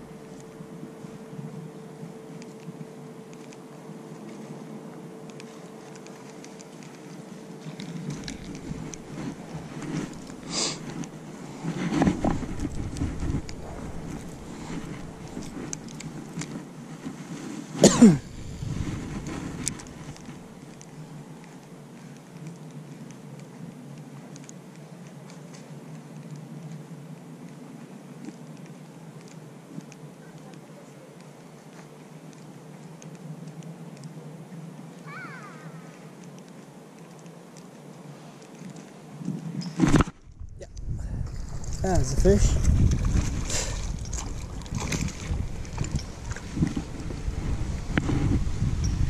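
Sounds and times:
low steady hum: 0.0s - 49.0s
low rumble of wind on microphone: 7.2s - 24.2s, 37.8s - 49.0s.

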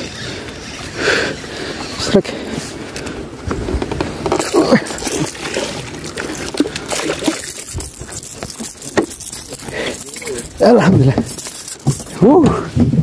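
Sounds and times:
water splashing from thrashing fish: 4.4s - 10.6s.

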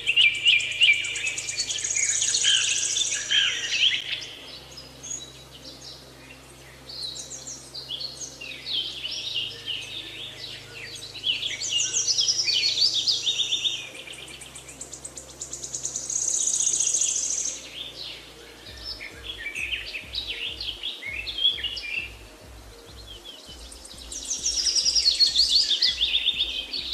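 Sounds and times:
birds chirping and trilling: 0.0s - 26.9s
soft music of low held notes: 0.0s - 26.9s
pulsing beat: 18.7s - 26.9s.

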